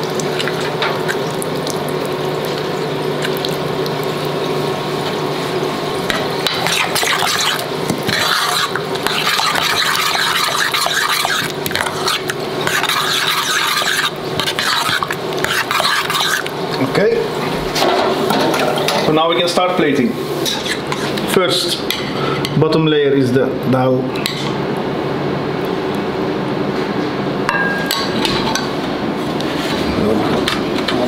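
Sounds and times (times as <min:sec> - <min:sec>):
steady hum: 0:00.0 - 0:31.0
spoon stirring in saucepan: 0:06.0 - 0:16.9, 0:20.4 - 0:21.2.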